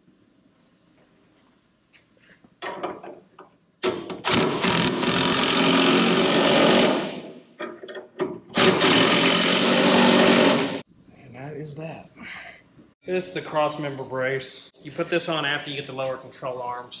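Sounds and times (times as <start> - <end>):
pneumatic wrench running: 4.0 - 7.2, 8.5 - 10.8.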